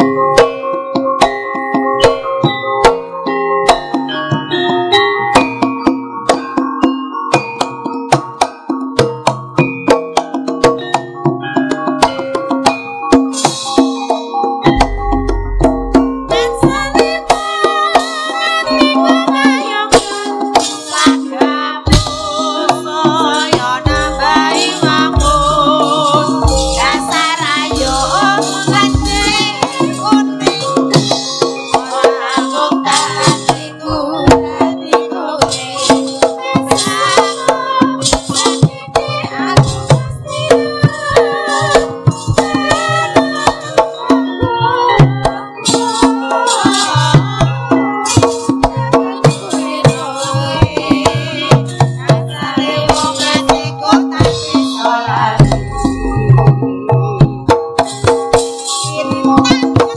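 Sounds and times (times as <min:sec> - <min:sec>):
metallophones playing melody: 0:00.0 - 0:59.9
woman singing: 0:16.3 - 0:47.8, 0:48.4 - 0:55.7, 0:58.9 - 0:59.9.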